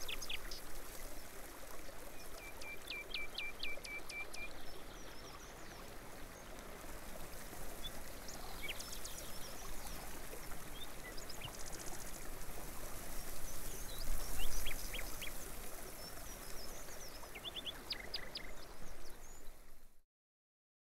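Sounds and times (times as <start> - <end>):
small birds chirping: 0.0 - 0.7, 7.7 - 12.3, 13.2 - 19.6
running water hiss: 0.0 - 19.9.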